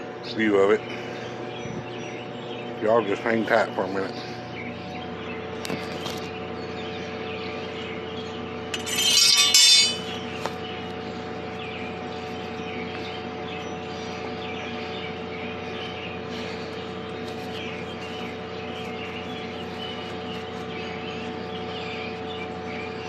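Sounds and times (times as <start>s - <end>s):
machinery hum: 0.0s - 23.0s
loud harsh rasping: 8.8s - 10.1s.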